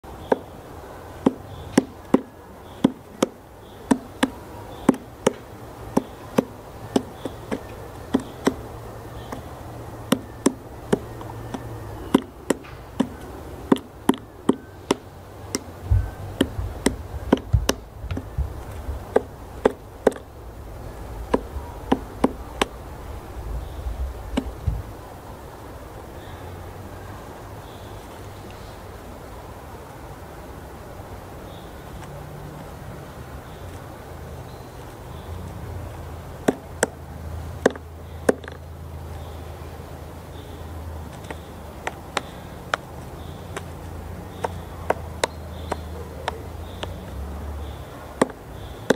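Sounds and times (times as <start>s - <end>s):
woodpecker knocking on wood: 0.2s - 0.6s, 1.2s - 20.4s, 21.2s - 22.8s, 24.3s - 24.9s, 36.4s - 38.6s, 41.1s - 47.1s, 48.1s - 48.9s.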